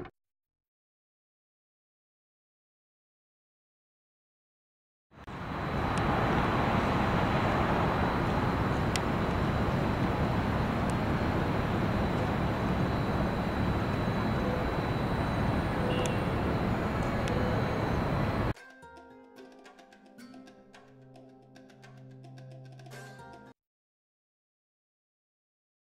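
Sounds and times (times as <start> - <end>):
faint high whine: 5.3 - 18.6
vehicle driving rumble: 5.3 - 18.6.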